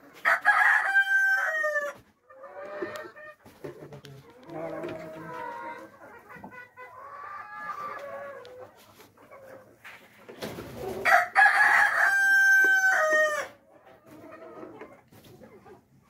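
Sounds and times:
rooster crowing: 0.2 - 1.9, 11.0 - 13.5
hens clucking softly: 2.0 - 11.1, 13.5 - 16.0.

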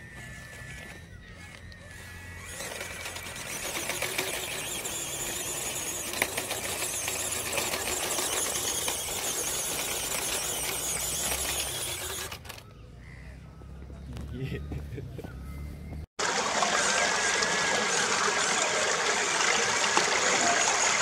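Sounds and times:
small electric motor whining: 0.0 - 12.8.

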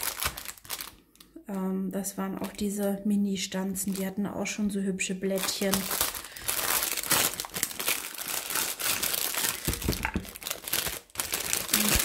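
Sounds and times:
plastic wrapping crinkling: 0.0 - 1.3, 3.7 - 4.6, 5.3 - 12.0
dull thumps: 9.6 - 10.4.

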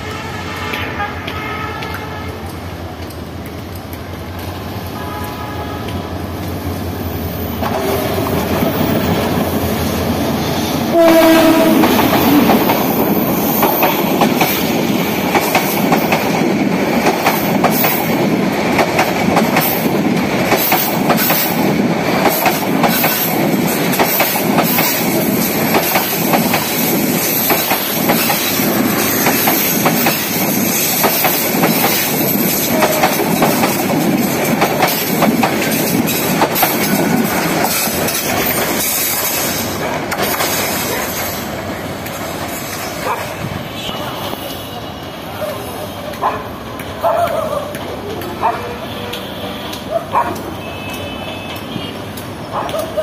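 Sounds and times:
train horn blast: 0.0 - 2.5, 4.9 - 6.0, 10.9 - 13.0, 32.7 - 33.2, 50.5 - 52.1
train coaches rumbling: 0.0 - 53.0
wheels clickety-clack on rail joints: 0.7 - 53.0.

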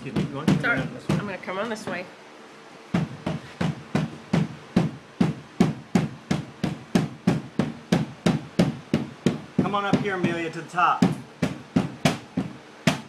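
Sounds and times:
rubber mallet tapping gasket: 3.0 - 13.0.

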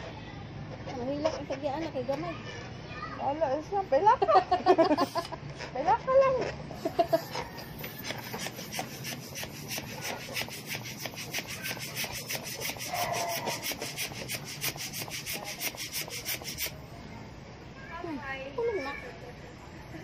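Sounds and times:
fast rasping rub: 6.9 - 16.8.

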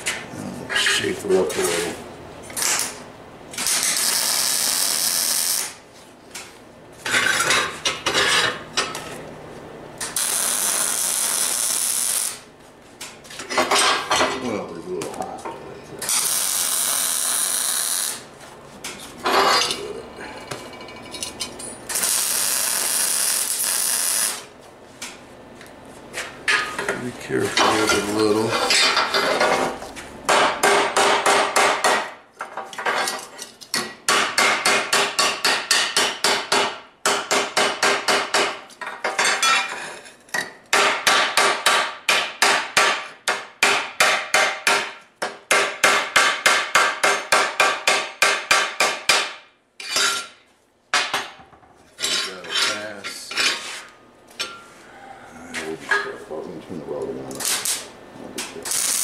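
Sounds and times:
welding arc crackling: 3.6 - 5.8, 10.0 - 12.5, 16.0 - 18.3, 21.9 - 24.5, 57.4 - 57.9, 58.6 - 59.0.

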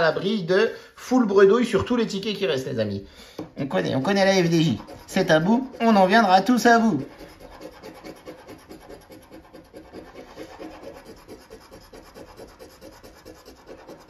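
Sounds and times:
scratch card scraping: 4.2 - 14.0.

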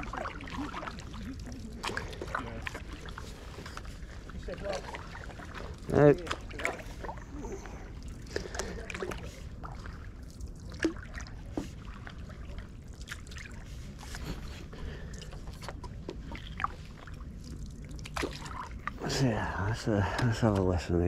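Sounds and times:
paddle strokes in water: 0.0 - 19.3
low steady rumble: 0.0 - 21.0
water dripping off paddle: 14.9 - 19.1.

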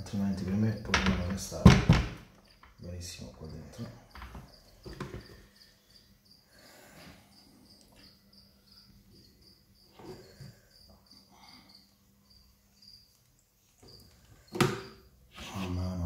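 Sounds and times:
crickets chirping: 0.0 - 16.0.

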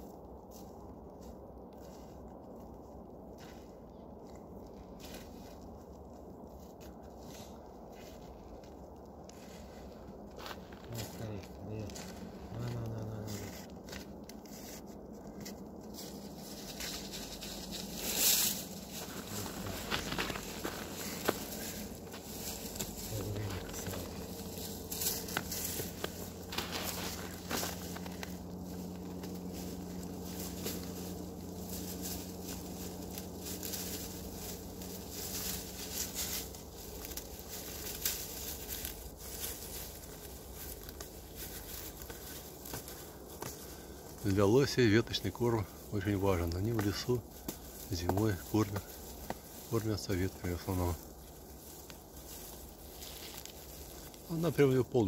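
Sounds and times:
leafy twigs rustling: 0.0 - 55.0
moose chewing: 11.4 - 44.2, 46.6 - 49.7.

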